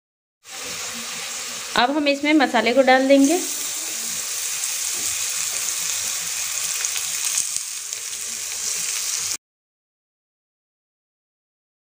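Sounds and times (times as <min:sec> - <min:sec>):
potatoes sizzling in hot oil: 0:00.4 - 0:09.4.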